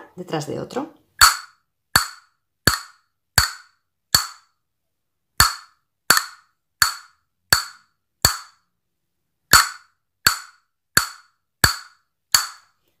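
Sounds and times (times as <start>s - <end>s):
castanet clacks: 1.2s - 4.5s, 5.4s - 8.7s, 9.5s - 12.8s.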